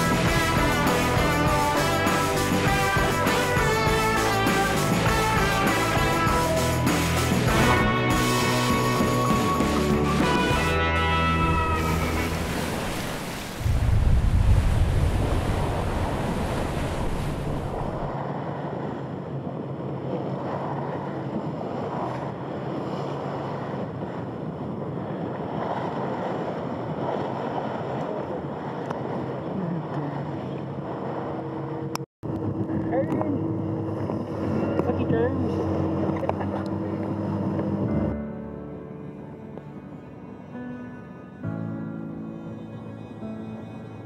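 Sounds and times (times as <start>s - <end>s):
water rushing past yacht: 0.0s - 44.0s
wind buffeting microphone: 11.4s - 38.3s.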